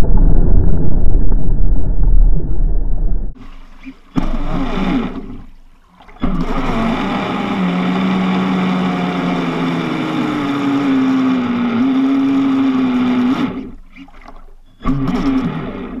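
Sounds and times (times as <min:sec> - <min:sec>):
water noise: 0:00.0 - 0:16.0
electric motor whining: 0:04.1 - 0:05.4, 0:06.2 - 0:14.1, 0:14.8 - 0:16.0.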